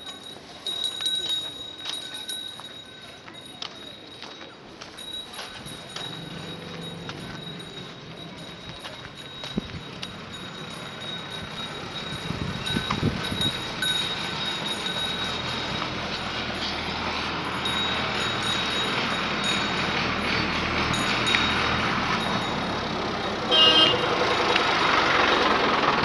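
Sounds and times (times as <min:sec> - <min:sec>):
motor vehicle rumbling: 0:00.0 - 0:26.0.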